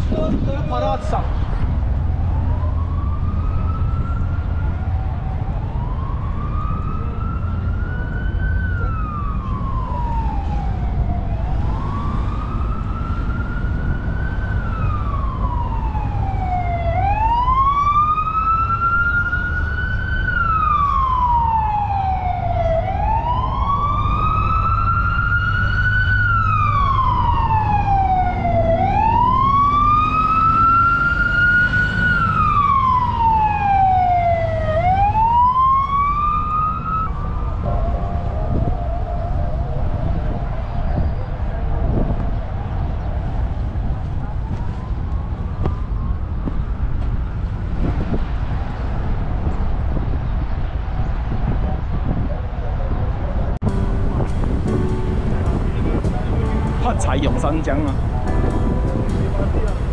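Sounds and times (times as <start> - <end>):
siren wailing: 2.0 - 47.4, 53.6 - 59.9
steady low rumble: 53.6 - 59.9.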